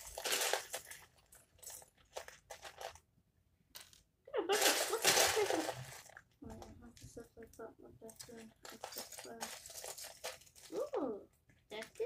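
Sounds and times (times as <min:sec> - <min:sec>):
plastic toy bricks clattering: 0:00.0 - 0:03.0, 0:03.7 - 0:06.7, 0:08.1 - 0:11.0.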